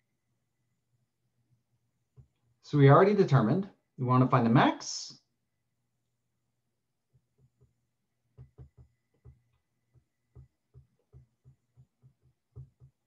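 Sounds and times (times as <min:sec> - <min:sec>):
stylus tapping on tablet: 0:07.1 - 0:13.0.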